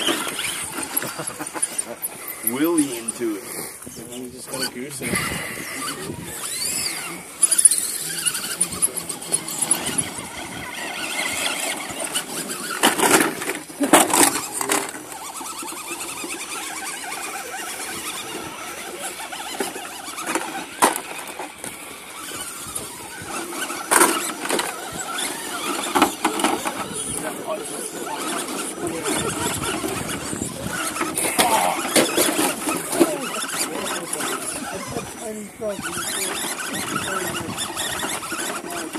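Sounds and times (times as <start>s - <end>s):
electric motors and gears whining: 0.0s - 38.9s
tyres clunking against rock: 28.1s - 34.6s.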